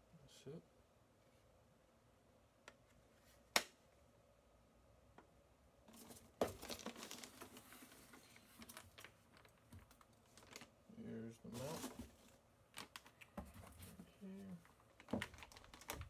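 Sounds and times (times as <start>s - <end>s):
rustling of packing peanuts and plastic: 5.9s - 13.2s, 13.8s - 16.0s.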